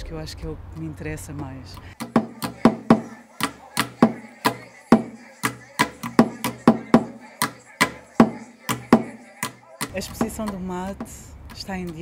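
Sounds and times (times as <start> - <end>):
drum strikes in quick rhythm: 2.0 - 10.6.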